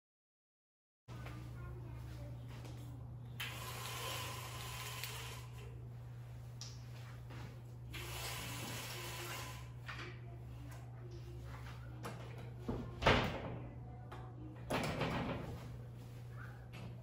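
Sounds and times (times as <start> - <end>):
steady low hum: 1.1 - 17.0
blinds being raised by cords: 3.4 - 5.7, 7.9 - 9.9.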